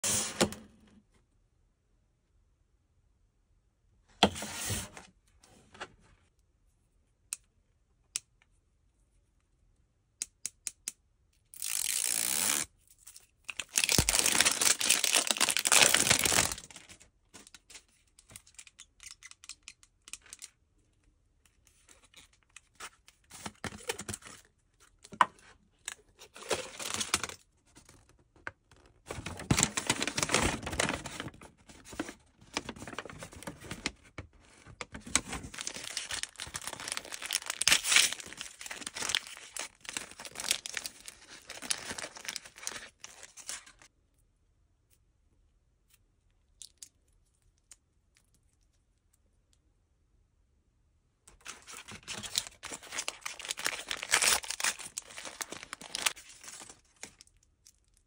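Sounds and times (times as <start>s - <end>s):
plastic wrap tearing: 13.5s - 17.0s, 29.1s - 31.3s, 35.2s - 43.8s, 51.4s - 57.2s
crinkling foil and paper: 13.5s - 17.6s, 29.1s - 43.9s, 51.3s - 58.0s
plastic packaging clicks: 13.5s - 17.6s, 34.8s - 43.8s, 51.4s - 57.9s.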